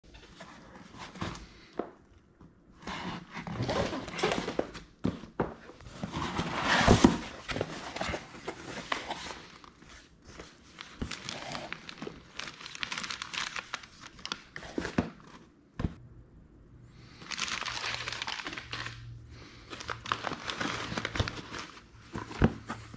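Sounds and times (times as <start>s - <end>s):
cardboard tearing and rustling: 2.8s - 4.8s, 5.8s - 9.7s, 10.4s - 15.2s, 17.2s - 19.0s, 19.6s - 22.9s
paper packing crinkling: 5.8s - 15.4s, 17.2s - 22.9s.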